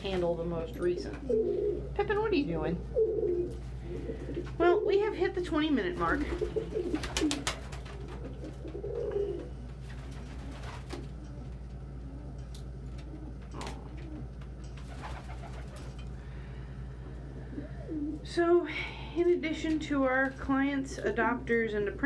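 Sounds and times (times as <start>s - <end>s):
steady low hum: 0.0s - 22.0s
pigeon cooing: 1.2s - 2.0s, 2.9s - 4.9s, 6.2s - 9.6s, 10.2s - 15.8s, 17.2s - 18.3s
pigeon wings flapping: 6.0s - 11.2s, 14.8s - 16.0s.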